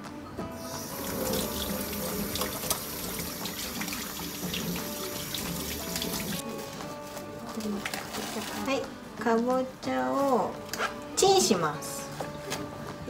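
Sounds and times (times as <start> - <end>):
hands being washed: 0.6 - 6.4
tap running into metal sink: 0.7 - 6.4.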